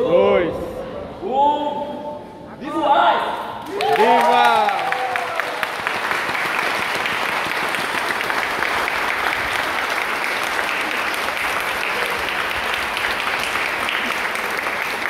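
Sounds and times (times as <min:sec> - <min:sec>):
crowd applauding: 0:03.6 - 0:15.0.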